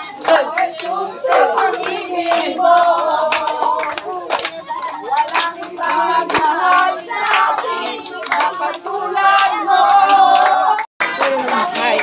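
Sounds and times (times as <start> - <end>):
children singing together: 0.0 - 12.0
hand clapping: 0.0 - 12.0.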